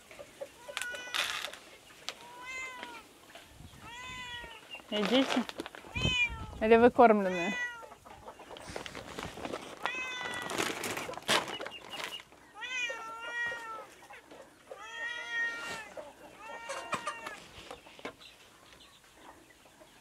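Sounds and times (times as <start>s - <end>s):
cat meowing: 0.6s - 1.3s, 2.2s - 3.1s, 3.8s - 4.6s, 5.9s - 6.6s, 7.2s - 7.9s, 9.8s - 10.6s, 12.6s - 13.9s, 14.8s - 17.4s.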